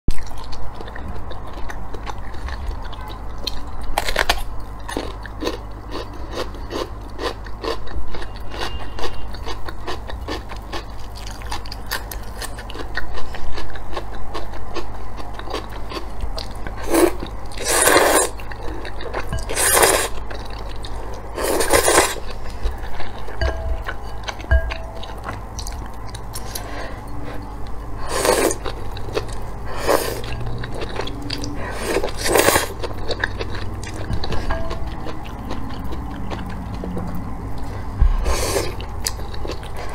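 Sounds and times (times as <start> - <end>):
crunchy bites and wet chewing: 0.1 - 23.4
slurping noodles: 16.8 - 18.8, 19.4 - 20.2, 21.4 - 22.4, 28.0 - 28.8.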